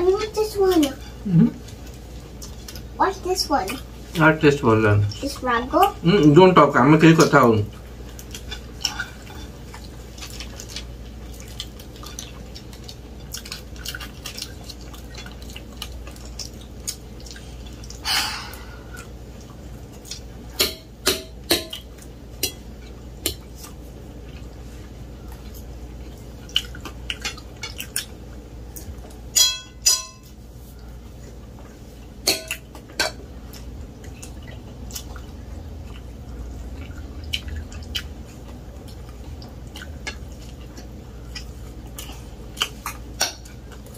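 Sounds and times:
low steady hum: 0.0 - 43.9
forks clinking on plates: 29.4 - 30.3.

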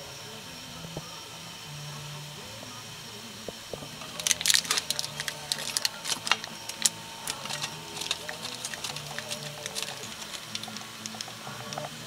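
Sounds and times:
plastic wrapper crackling: 4.1 - 12.0
cheese scraping on metal grater: 4.2 - 11.8.

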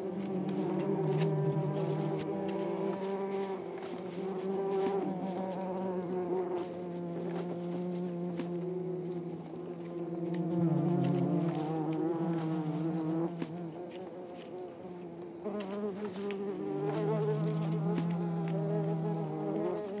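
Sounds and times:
wasps buzzing: 0.0 - 14.6, 15.4 - 20.0
faint ticks: 9.7 - 12.6, 15.5 - 20.0.

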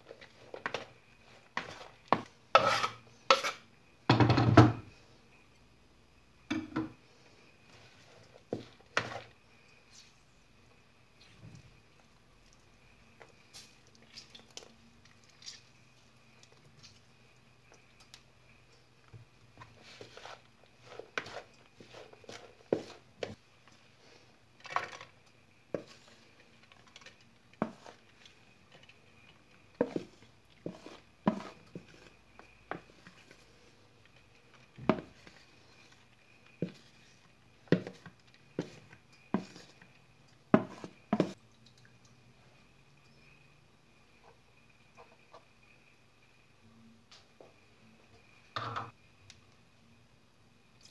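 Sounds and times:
wooden spoon knocking and scraping bowl: 0.0 - 4.9, 7.7 - 9.4, 19.6 - 23.4, 25.7 - 33.4, 34.1 - 41.4.

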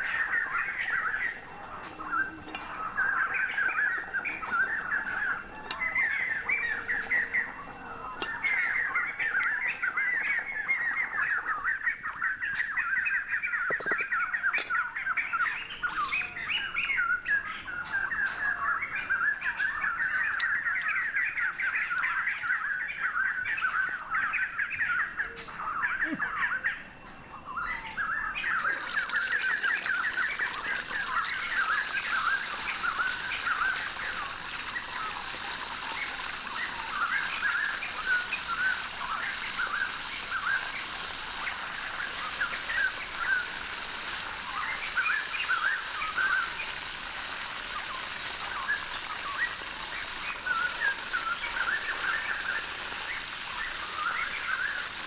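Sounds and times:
birds chirping: 0.0 - 55.0
fish sizzling in hot oil: 28.0 - 55.0.

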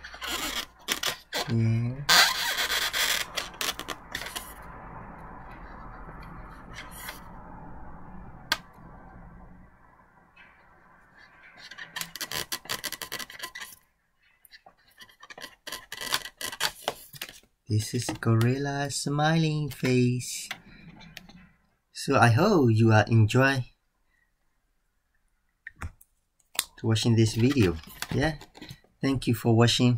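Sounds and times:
marker drawing on balloon: 0.0 - 4.6
balloons rubbing and creaking: 0.0 - 7.4, 11.0 - 21.6, 26.8 - 29.2.

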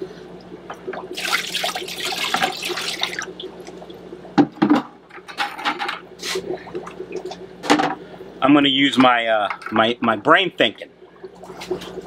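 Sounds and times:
water pouring from bucket: 1.1 - 3.5
sharp water splashes: 1.1 - 3.9.

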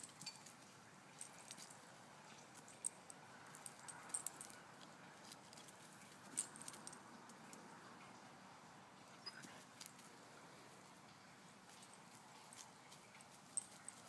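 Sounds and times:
dog collar and leash clinking: 0.0 - 7.6, 9.2 - 10.2, 11.7 - 14.0.

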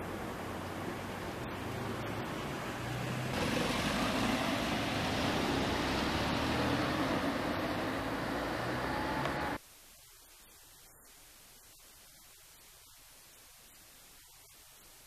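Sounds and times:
car driving by: 0.6 - 9.6.

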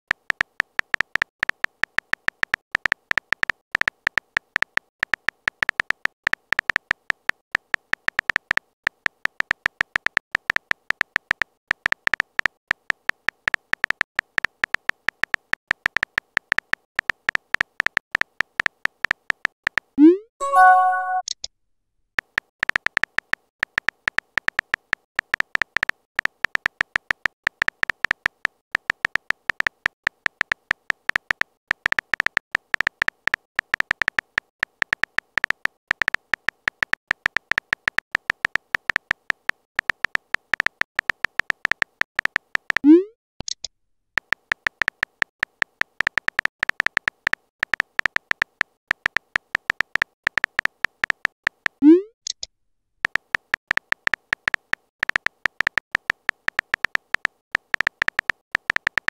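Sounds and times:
electronic keyboard key clicks: 43.4 - 59.0.

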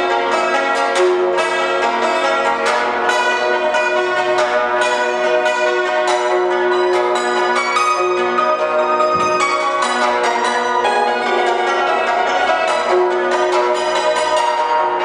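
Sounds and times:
hammered dulcimer playing: 0.0 - 15.0.

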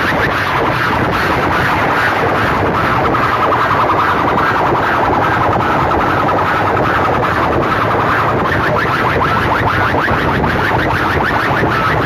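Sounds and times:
loudspeakers blaring warbling siren: 0.0 - 12.0.

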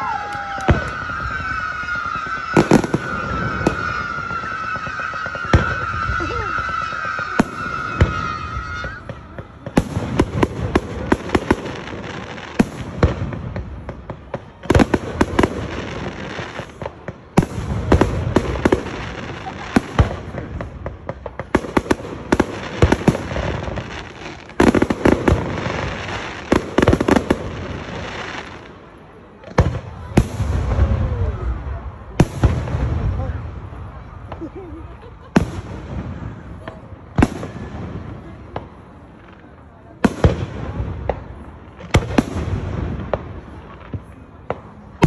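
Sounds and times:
fireworks booming and crackling: 0.0 - 45.0.

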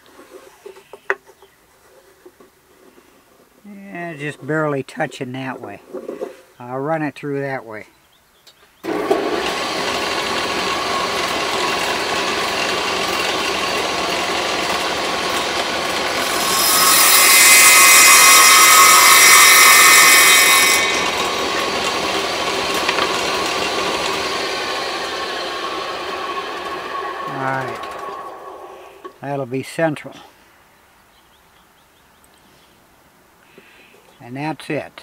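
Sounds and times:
saw cutting wood: 8.8 - 29.2
table saw motor whine: 8.8 - 29.2.

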